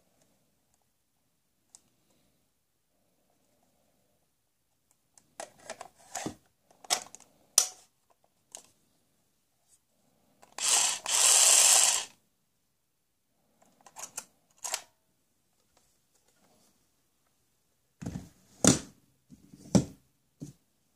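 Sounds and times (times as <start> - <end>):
toy drill running: 10.5 - 12.2.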